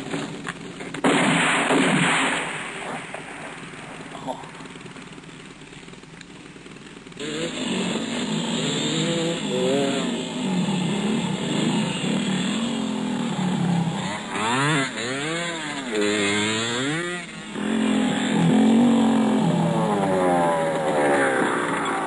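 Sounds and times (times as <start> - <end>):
motorcycle engines revving: 0.0 - 22.0.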